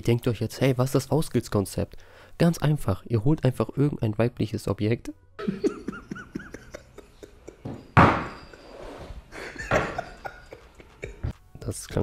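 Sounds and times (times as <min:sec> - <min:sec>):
man laughing: 0:05.4 - 0:07.9, 0:09.3 - 0:11.4.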